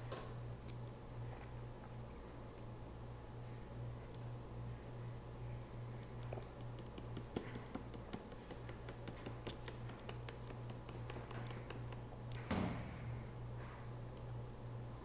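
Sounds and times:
low hum: 0:09.9 - 0:15.0.

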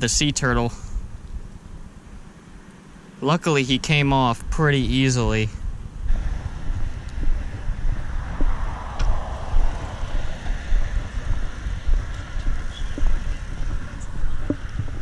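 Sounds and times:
wind buffeting microphone: 0:03.7 - 0:15.0
road traffic passing: 0:04.9 - 0:15.0.

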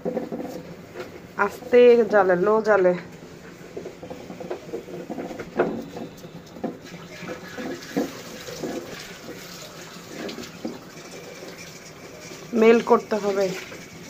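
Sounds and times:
spatula scraping sugar in pot: 0:06.9 - 0:14.0.

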